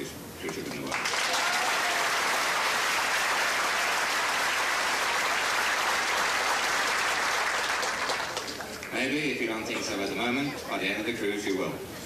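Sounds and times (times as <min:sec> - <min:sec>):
audience applauding: 0:00.5 - 0:09.0.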